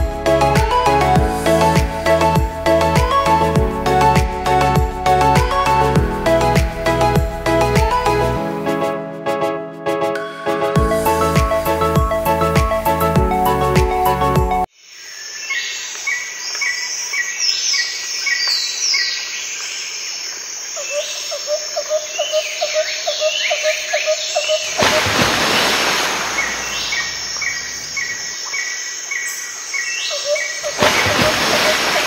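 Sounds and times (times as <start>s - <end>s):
sweeping whistled calls: 15.1s - 32.0s
birds chirping: 20.8s - 32.0s
rushing hiss: 24.7s - 28.0s.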